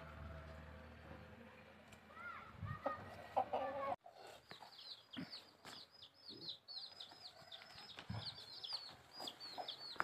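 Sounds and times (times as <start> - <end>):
small birds chirping: 3.4 - 10.0.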